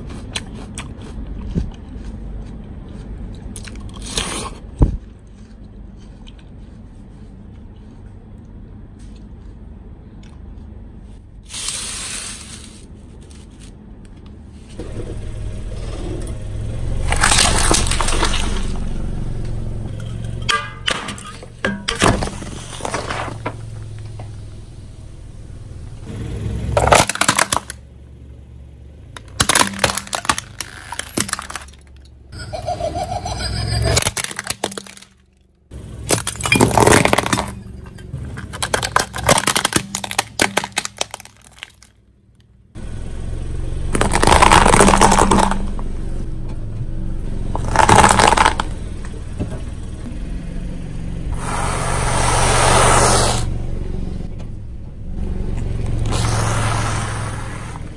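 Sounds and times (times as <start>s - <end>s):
car tyre crushing objects: 14.6s - 24.9s, 25.9s - 32.4s, 33.5s - 50.0s, 55.5s - 57.9s.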